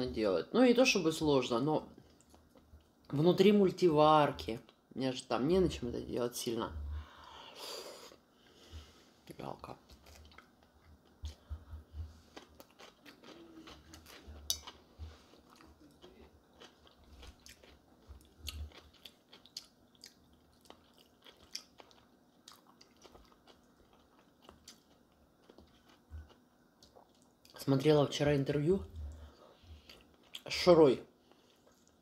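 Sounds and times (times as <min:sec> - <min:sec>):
chewing crisp cucumber: 0:09.9 - 0:27.6, 0:29.1 - 0:30.6.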